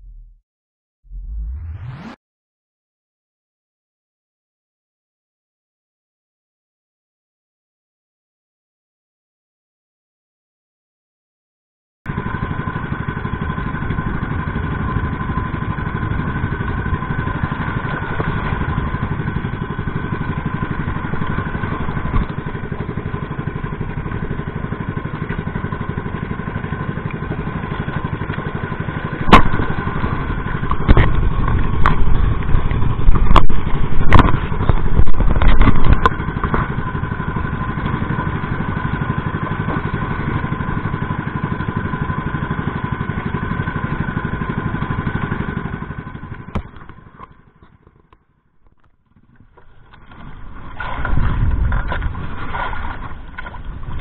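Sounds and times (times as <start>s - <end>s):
small boat engine droning: 12.1s - 54.0s
hull slapping through waves: 50.1s - 54.0s.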